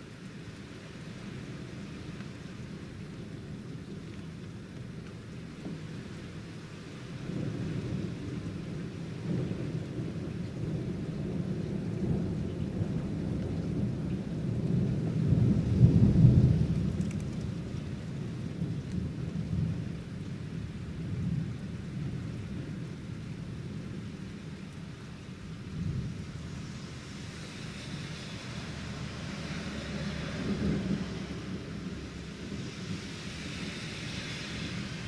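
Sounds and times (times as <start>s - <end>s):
steady rain: 0.0s - 35.0s
rolling thunder: 7.1s - 24.2s, 25.3s - 35.0s.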